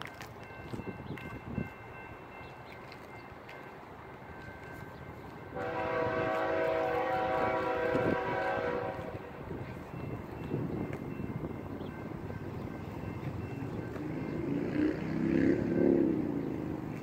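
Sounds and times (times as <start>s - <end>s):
train rumbling: 0.0s - 17.0s
locomotive air horn chord: 5.5s - 9.4s.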